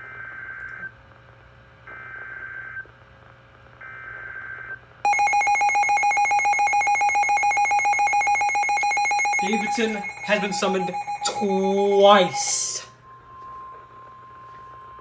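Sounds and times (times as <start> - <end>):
rapidly pulsing alarm beep: 5.1 - 12.9
screechy data tone bursts: 5.1 - 12.9.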